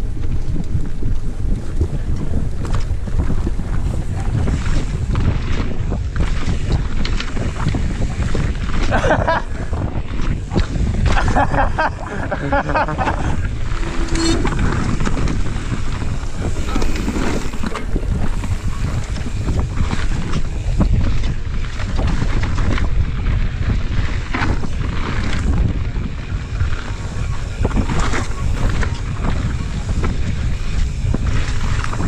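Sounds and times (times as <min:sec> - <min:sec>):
bike knocking and rattling: 0:00.0 - 0:32.0
tyres rumbling on dirt trail: 0:00.0 - 0:32.0
wind buffeting microphone: 0:00.0 - 0:32.0.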